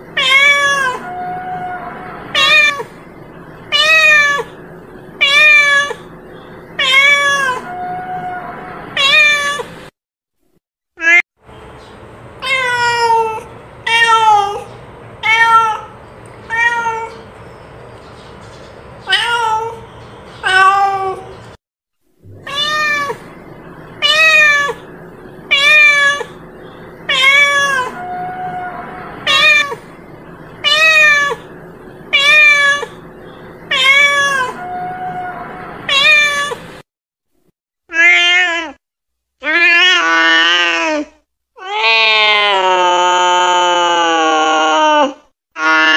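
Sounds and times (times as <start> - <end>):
cat meowing: 0.2 - 3.0, 3.7 - 4.6, 5.2 - 6.1, 6.8 - 9.7, 12.4 - 17.2, 19.1 - 19.8, 20.4 - 21.4, 22.3 - 23.3, 24.0 - 24.8, 25.5 - 26.4, 27.0 - 29.8, 30.6 - 31.5, 32.1 - 33.0, 33.7 - 36.7, 37.9 - 38.8.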